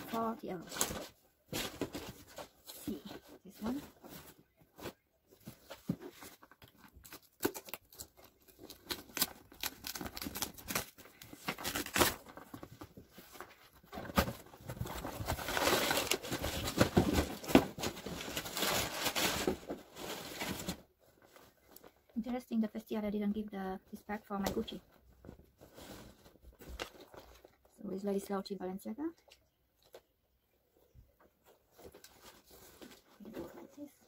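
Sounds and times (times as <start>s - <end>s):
packaging rustling: 0.6s - 22.0s.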